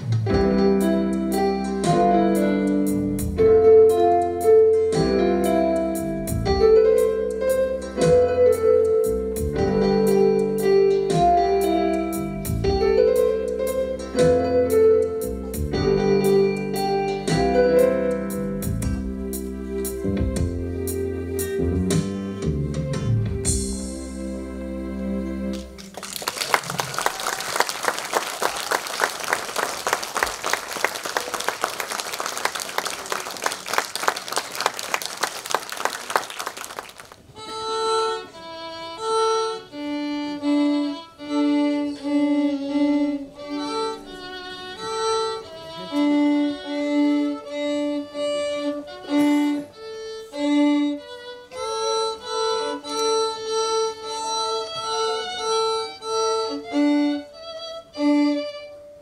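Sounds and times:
violin duet: 0.3s - 23.5s, 37.3s - 59.0s
audience applause: 25.8s - 37.3s.

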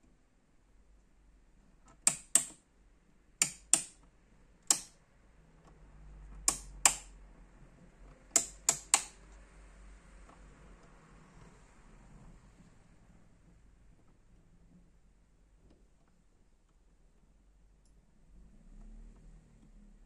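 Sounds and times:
rotary switches clicking: 1.9s - 2.6s, 3.4s - 4.1s, 4.7s - 5.0s, 6.4s - 7.2s, 8.3s - 9.2s.

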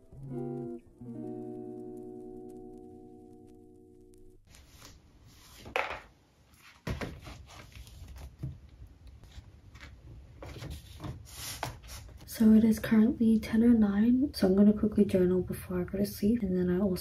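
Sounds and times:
paper pages rustling: 4.5s - 5.8s, 6.5s - 12.3s.

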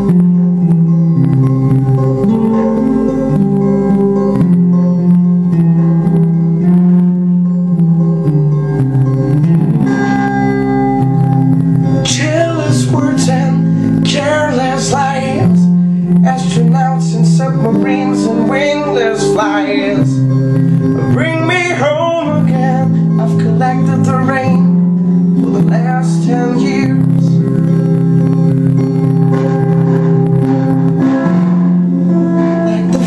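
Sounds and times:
held accompaniment chords: 0.0s - 33.0s
man singing: 12.0s - 20.4s, 21.0s - 27.5s, 32.6s - 33.0s.

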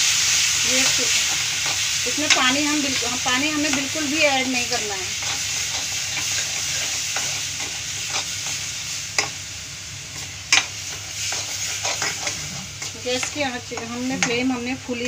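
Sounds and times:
masala sizzling in a pan: 0.0s - 15.0s
spatula scraping a pan: 10.5s - 14.4s.

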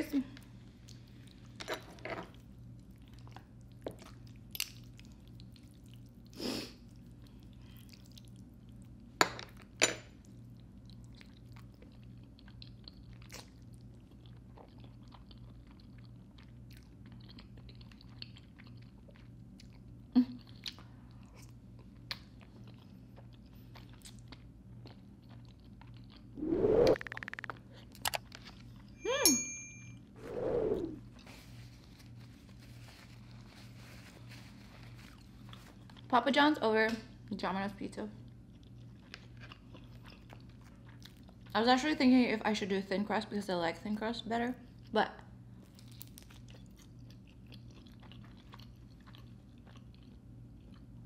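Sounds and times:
person chewing noodles: 2.3s - 9.1s, 10.2s - 28.9s, 38.2s - 41.5s, 45.6s - 51.0s.

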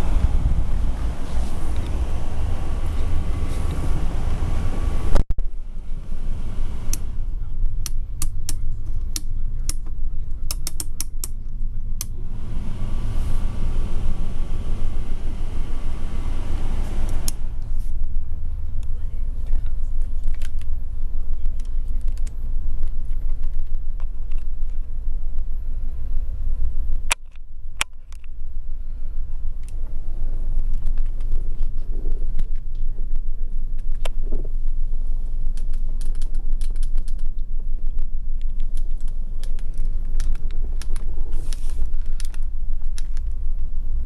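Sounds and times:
low vehicle cabin rumble: 0.0s - 44.0s
clicks and creaks: 35.4s - 43.4s.

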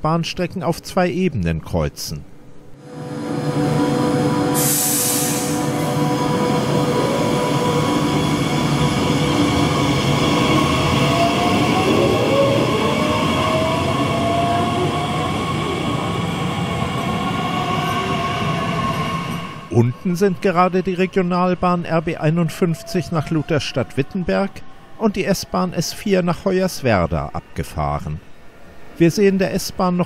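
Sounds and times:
electric train drive whine rising: 2.8s - 21.0s
short hiss: 4.6s - 5.7s.

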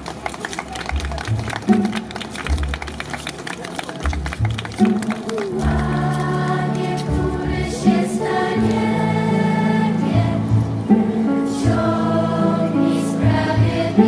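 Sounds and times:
choir singing held chords: 5.5s - 14.0s.

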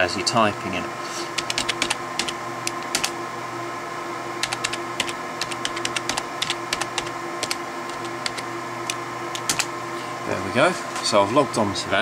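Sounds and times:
steady hum: 0.0s - 12.0s
keyboard keys clicking: 1.4s - 3.1s, 4.4s - 9.7s.

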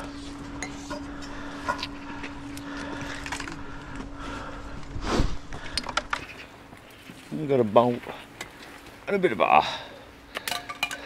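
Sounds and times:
iron objects clicking on stone: 10.3s - 11.0s.

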